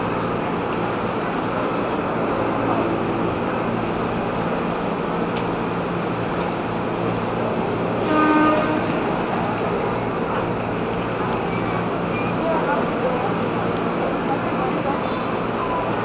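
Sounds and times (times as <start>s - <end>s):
train horn toot: 8.0s - 9.1s.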